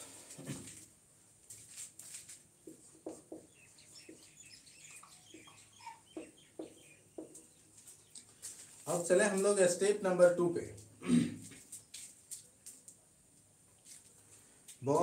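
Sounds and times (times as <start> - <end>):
marker squeaking on whiteboard: 2.6 - 7.6
pen tapping on board: 2.7 - 3.5.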